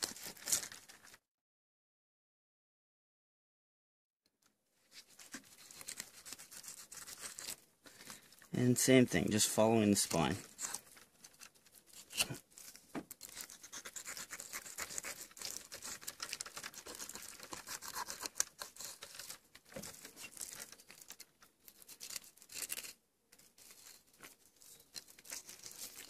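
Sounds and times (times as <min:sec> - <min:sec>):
knife scratching over fish bones: 0:05.2 - 0:07.6, 0:13.2 - 0:20.8.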